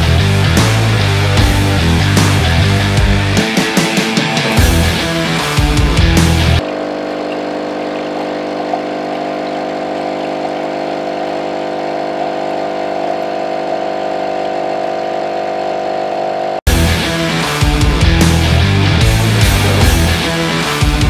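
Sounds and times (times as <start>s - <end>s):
coffee machine pump buzzing: 4.2s - 16.6s, 19.0s - 21.0s.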